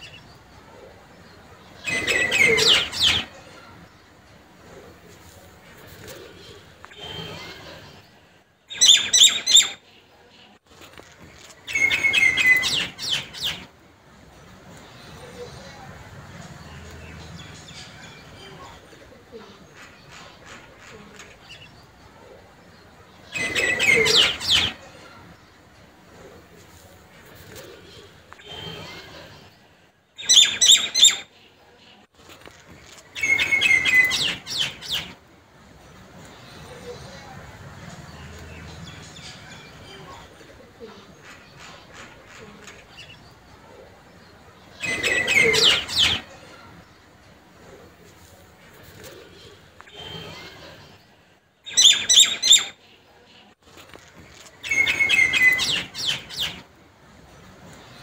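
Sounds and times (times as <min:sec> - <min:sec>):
small birds chirping: 0:00.0 - 0:58.0
bird chirping: 0:54.6 - 0:56.6.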